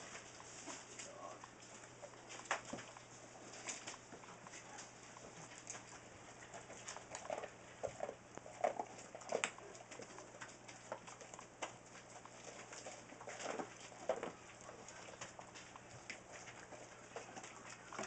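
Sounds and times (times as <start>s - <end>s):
shuffling: 0.0s - 18.0s.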